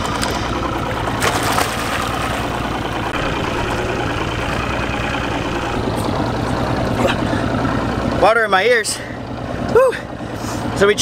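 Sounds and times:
boat engine idling: 0.0 - 11.0
splash of diver entering water: 1.2 - 2.6.

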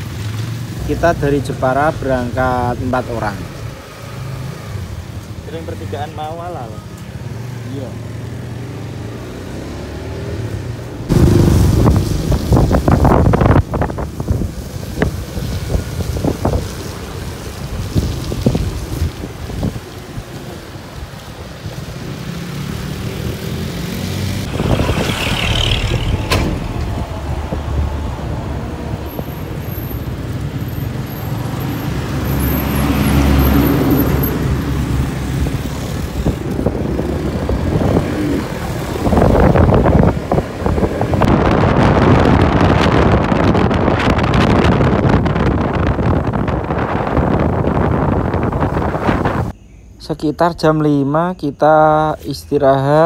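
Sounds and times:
road noise: 0.0 - 53.0
motorcycle engine drone: 7.6 - 18.7, 19.6 - 29.6
wind buffeting microphone: 11.0 - 22.0, 24.2 - 32.2, 33.4 - 49.6.

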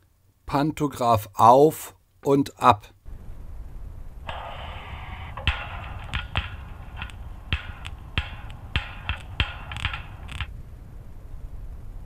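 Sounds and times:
steady hiss: 0.0 - 12.0
sharp clanks and clicks: 5.2 - 10.5.

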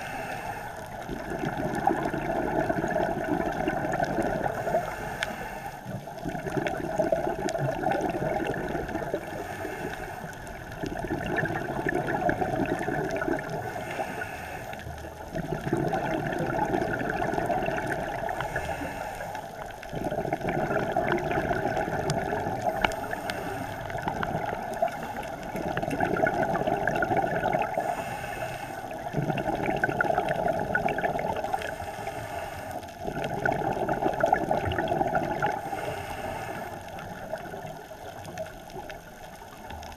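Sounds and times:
diver breathing through regulator: 0.0 - 1.0, 3.8 - 6.1, 7.8 - 10.6, 12.2 - 15.7, 17.8 - 25.8, 26.6 - 30.1, 31.4 - 33.8, 35.2 - 37.3
bubbles gurgling: 0.8 - 5.0, 5.8 - 14.1, 14.8 - 28.1, 28.8 - 32.0, 32.9 - 39.9.

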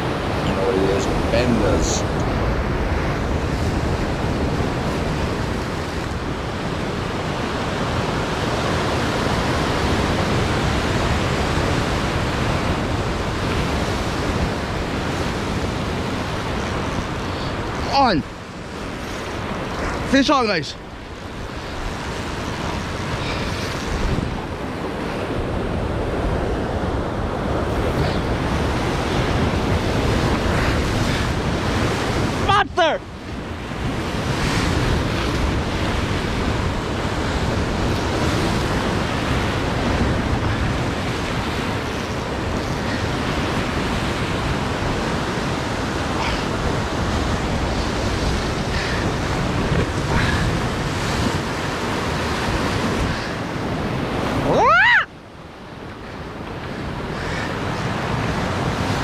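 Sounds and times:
wind buffeting microphone: 0.0 - 59.0
surf breaking on rocks: 27.6 - 55.1.

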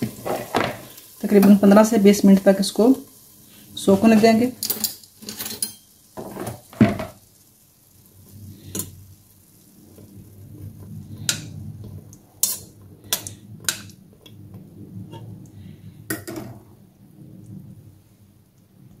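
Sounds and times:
metal spoon clinking on pot: 4.6 - 5.9.

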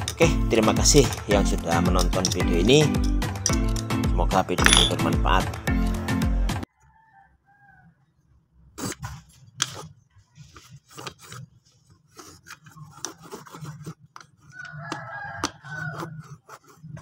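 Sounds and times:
metal knocks and clinks: 4.6 - 5.1.

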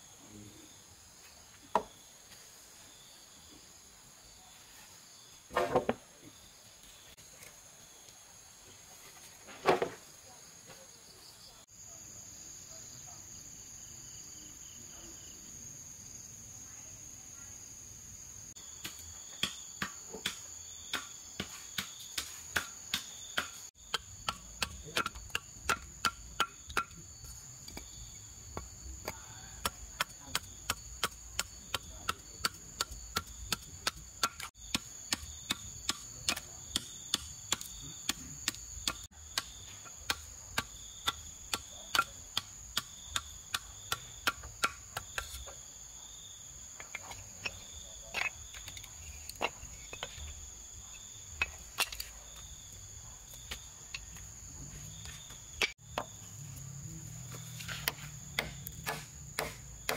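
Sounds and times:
machete chopping wood: 5.5 - 6.0, 18.8 - 27.0, 28.5 - 45.5, 57.3 - 59.9
high-pitched insect trill: 10.3 - 59.9.

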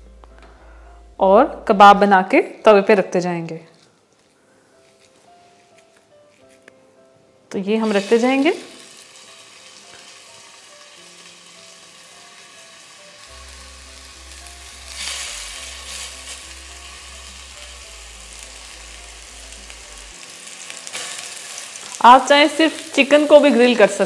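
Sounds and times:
soft background music: 0.0 - 24.0
kebabs sizzling in oil: 7.5 - 24.0.

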